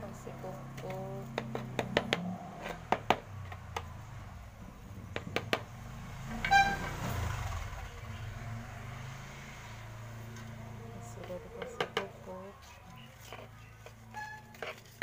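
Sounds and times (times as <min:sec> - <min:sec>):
high-pitched horn toot: 0:06.4 - 0:07.0.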